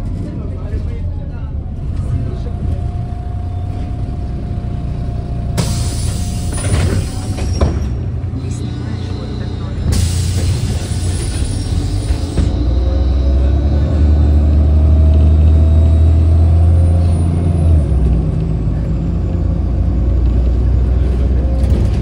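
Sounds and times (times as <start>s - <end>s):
bus engine droning: 0.0s - 22.0s
air hiss: 5.6s - 7.4s.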